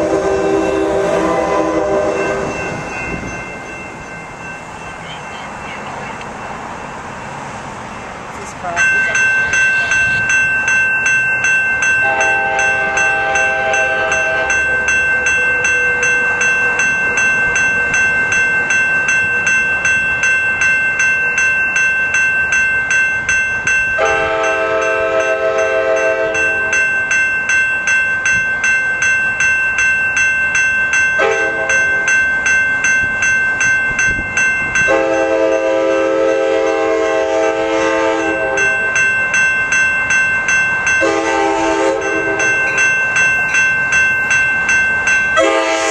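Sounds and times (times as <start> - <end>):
train air horn: 0.0 - 2.5, 12.0 - 14.6, 24.0 - 26.4, 34.9 - 38.6, 41.0 - 42.4, 45.4 - 45.9
rapid ringing bell: 2.1 - 7.4, 8.6 - 35.6, 38.2 - 45.5.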